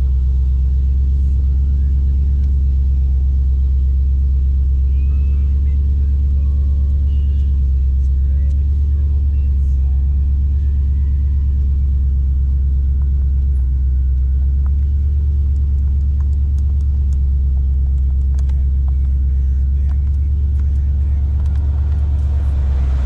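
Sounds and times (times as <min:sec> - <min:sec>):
car engine idling: 0:00.0 - 0:23.0.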